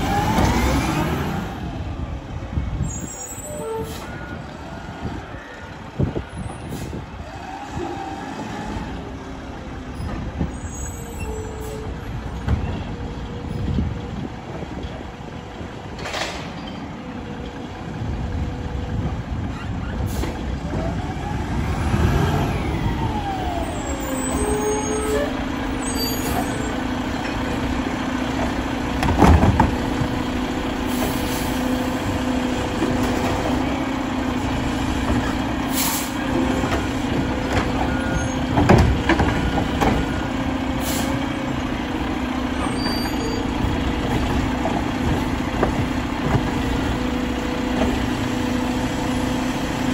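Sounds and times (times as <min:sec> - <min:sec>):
garbage truck diesel engine: 0:00.0 - 0:49.9
air brake hiss: 0:35.7 - 0:36.2, 0:40.8 - 0:41.2.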